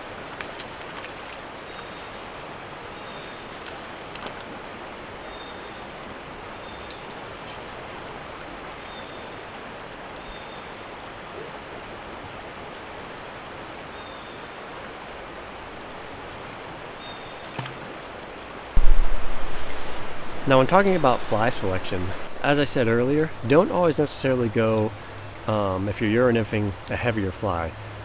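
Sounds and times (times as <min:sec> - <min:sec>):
river rushing over riffles: 0:00.0 - 0:28.0
faint clicks: 0:06.8 - 0:08.1.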